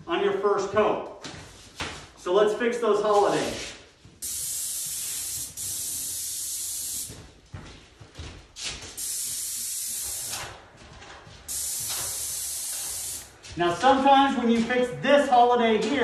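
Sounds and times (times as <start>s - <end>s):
paint spray gun hissing: 4.2s - 7.2s, 9.0s - 10.6s, 11.5s - 13.3s.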